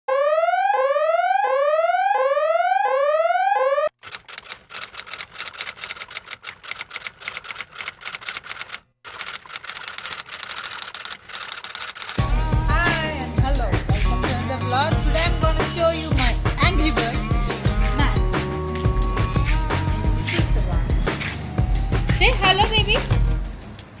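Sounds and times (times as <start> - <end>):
typewriter keys clicking: 4.0 - 12.2.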